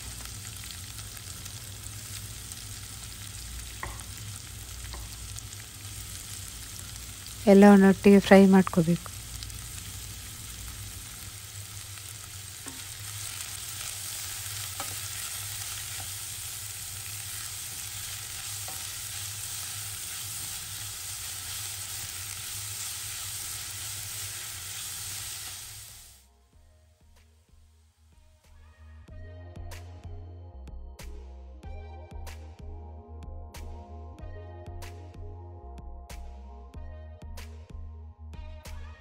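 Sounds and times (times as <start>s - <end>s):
onions sizzling in hot oil: 0.0s - 26.3s.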